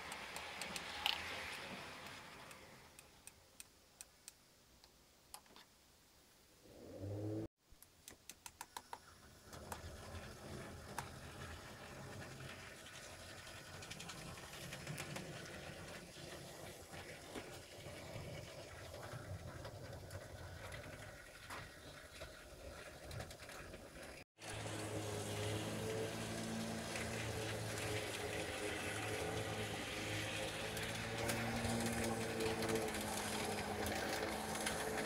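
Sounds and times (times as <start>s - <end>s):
wheels clicking over rail joints: 0.0s - 3.1s, 9.2s - 35.0s.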